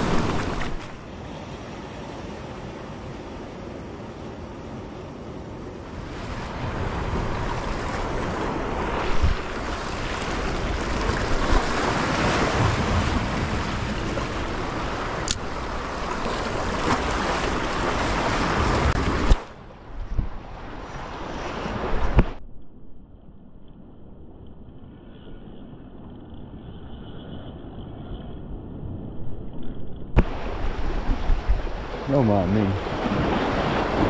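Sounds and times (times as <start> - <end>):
surf washing against rocks: 0.0 - 19.6, 30.2 - 34.0
wind buffeting microphone: 4.8 - 22.4, 25.0 - 34.0
sharp click: 15.2 - 15.4.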